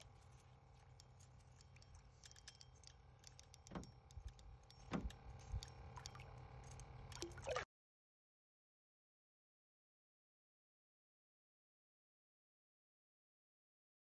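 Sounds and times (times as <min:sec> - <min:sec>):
small clicks: 0:00.0 - 0:07.6
faint low hum: 0:00.0 - 0:07.7.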